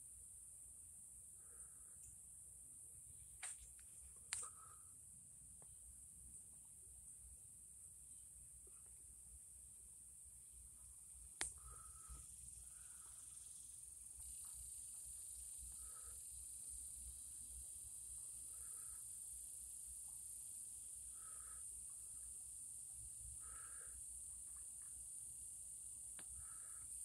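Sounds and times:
high-pitched insect trilling: 0:11.4 - 0:27.0.

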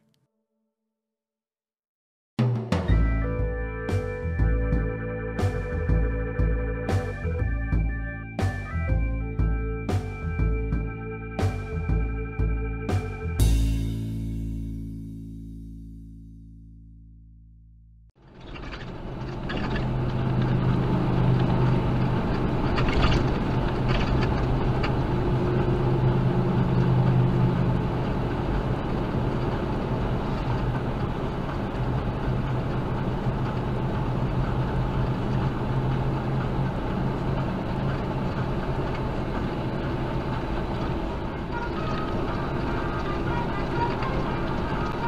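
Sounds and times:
truck diesel engine running: 0:02.9 - 0:15.7, 0:18.2 - 0:45.0
road and wind noise: 0:18.2 - 0:45.0.

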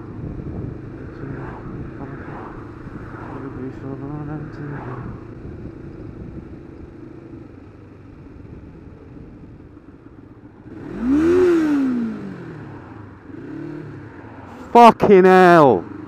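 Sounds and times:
lorry passing with rush of air: 0:00.0 - 0:07.2, 0:08.0 - 0:15.0
wind noise: 0:00.0 - 0:11.9
motorcycle riding at low speed: 0:00.0 - 0:16.0.

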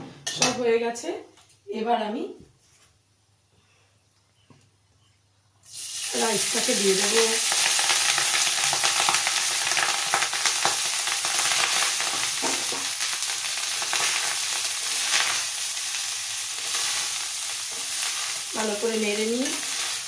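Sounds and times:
rice sizzling in hot oil: 0:05.6 - 0:20.0.

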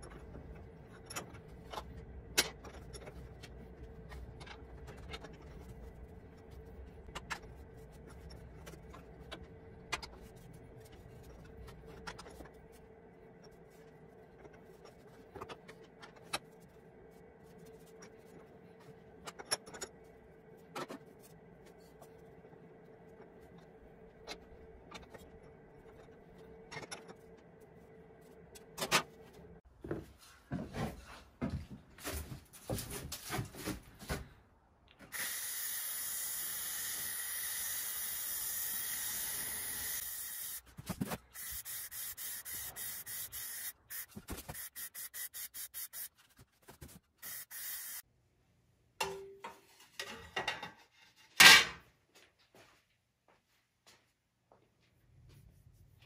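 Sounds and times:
aerosol can spraying: 0:41.4 - 0:46.2, 0:47.2 - 0:48.0.

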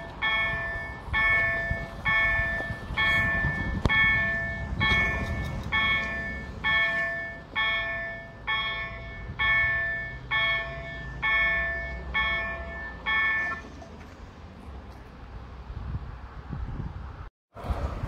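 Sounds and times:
level-crossing warning bell: 0:00.0 - 0:13.7.

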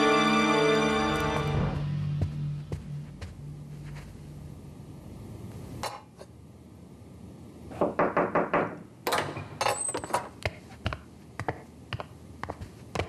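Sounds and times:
knocking at a door: 0:07.8 - 0:08.8.

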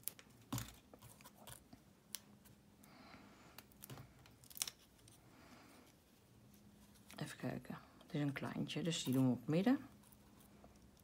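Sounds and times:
soft paper rustle: 0:03.8 - 0:11.0.

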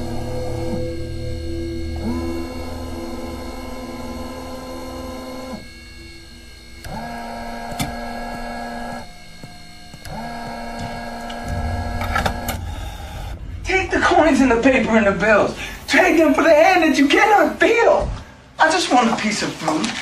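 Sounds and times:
gas pump motor whirring: 0:00.0 - 0:13.6.

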